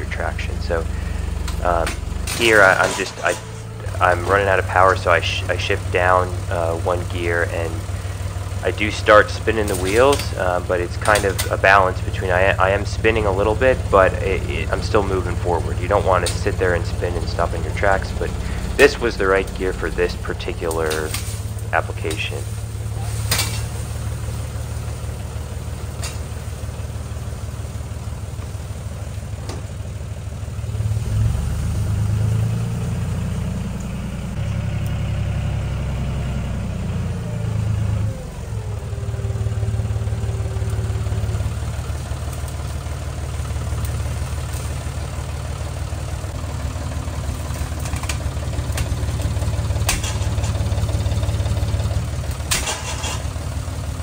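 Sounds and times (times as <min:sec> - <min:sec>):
tractor diesel engine under load: 0:00.0 - 0:54.0.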